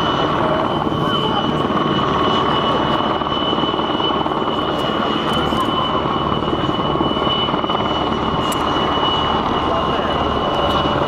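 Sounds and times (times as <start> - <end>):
helicopter rotor and turbine noise: 0.0 - 11.0
high turbine whine: 0.0 - 11.0.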